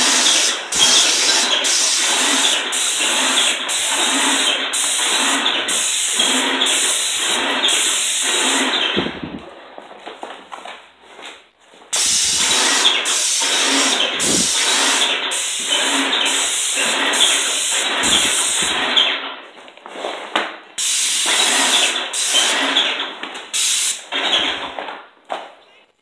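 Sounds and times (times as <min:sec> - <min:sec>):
paint spray gun hissing: 0:00.0 - 0:09.0, 0:12.0 - 0:19.0, 0:20.8 - 0:22.9, 0:23.5 - 0:24.2.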